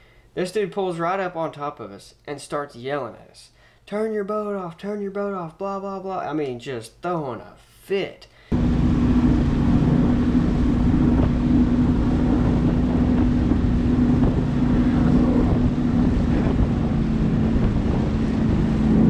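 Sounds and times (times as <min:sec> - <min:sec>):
outboard motor running: 0:08.5 - 0:19.0
water rushing along hull: 0:08.5 - 0:19.0
wind buffeting microphone: 0:08.5 - 0:19.0.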